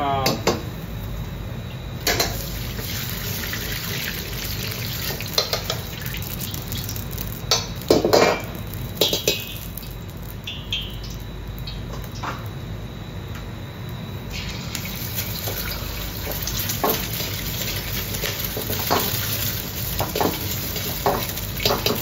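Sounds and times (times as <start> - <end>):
gas burner rushing: 2.0 - 10.5, 14.2 - 22.0
hot oil swirling: 2.4 - 7.5, 14.3 - 22.0.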